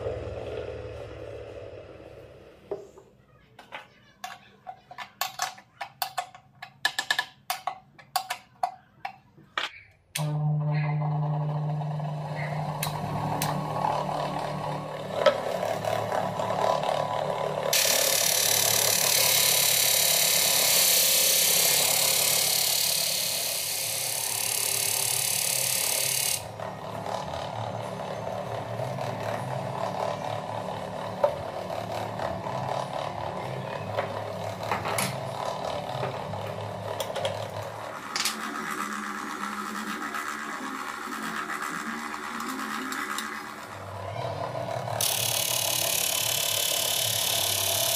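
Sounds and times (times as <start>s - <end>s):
disc sander motor hum: 10.2s - 47.9s.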